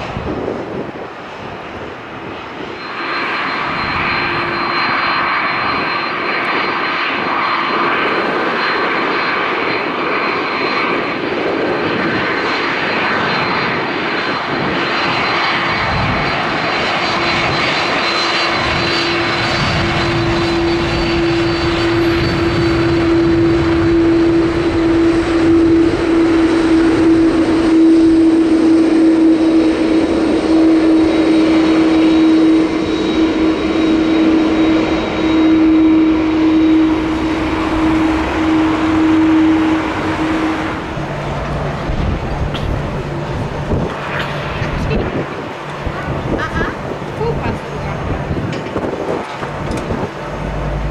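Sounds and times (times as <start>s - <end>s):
jet engines whining: 0.0s - 50.9s
strong low hum: 18.5s - 50.9s.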